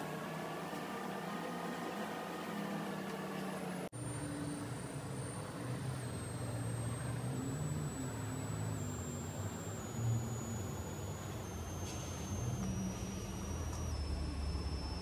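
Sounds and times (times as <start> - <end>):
steady low hum: 0.0 - 15.0
thin high whine: 0.0 - 15.0
faint held tones: 4.0 - 15.0.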